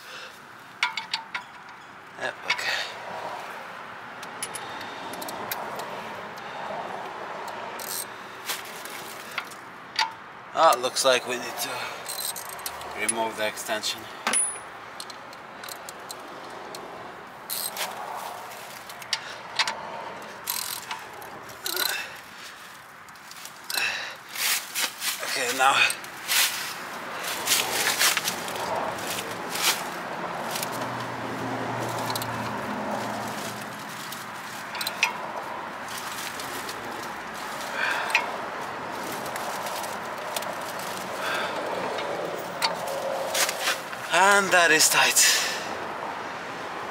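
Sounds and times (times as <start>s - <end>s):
wrench clicks and scrapes: 0.7s - 1.8s, 4.2s - 6.4s, 7.0s - 10.8s, 12.0s - 13.4s, 14.3s - 22.1s, 31.8s - 44.1s
ratchet wrench clicking: 0.8s - 1.8s, 4.2s - 5.9s, 7.4s - 8.1s, 12.0s - 13.2s, 14.4s - 18.0s, 18.8s - 22.0s, 31.9s - 32.6s, 34.0s - 35.2s, 38.0s - 38.4s
metal tools clinking: 0.8s - 2.8s, 11.1s - 16.2s, 20.4s - 22.1s, 31.9s - 38.4s.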